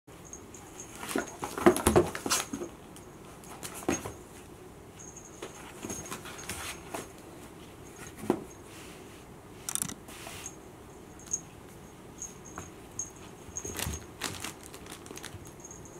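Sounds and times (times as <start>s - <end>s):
rustling: 13.2s - 15.9s.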